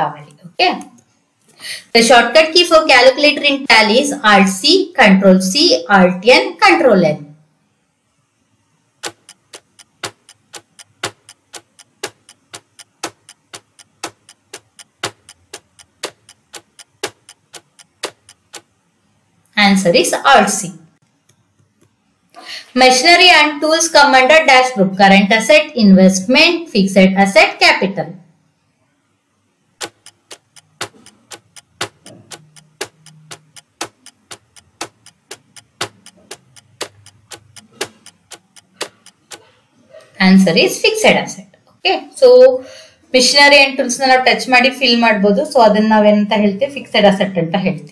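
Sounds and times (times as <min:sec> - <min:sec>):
countdown timer ticking: 0:09.0 - 0:18.8, 0:29.8 - 0:39.5.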